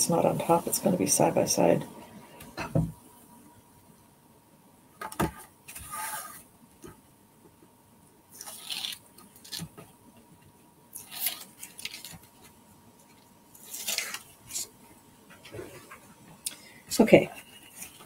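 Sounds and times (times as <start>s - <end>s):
paper sliding and rustling: 5.7s - 6.5s
tape backing peeled off: 8.4s - 9.8s, 11.0s - 12.5s, 13.6s - 14.7s.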